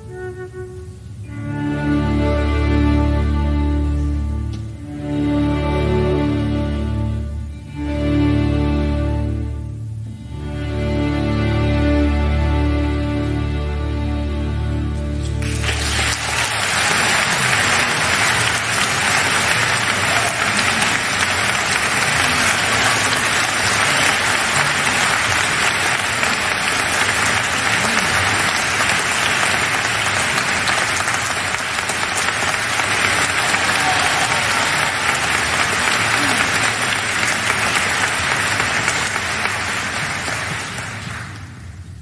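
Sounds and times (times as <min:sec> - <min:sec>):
audience applauding: 0:15.2 - 0:42.0.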